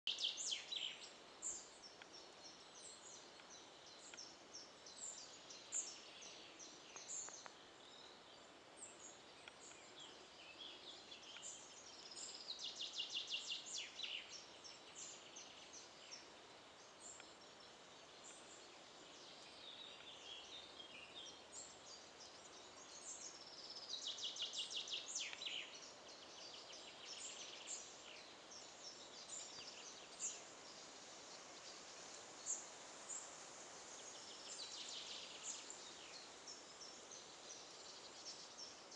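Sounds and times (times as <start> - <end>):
songbirds chirping and whistling: 0.0 - 38.9.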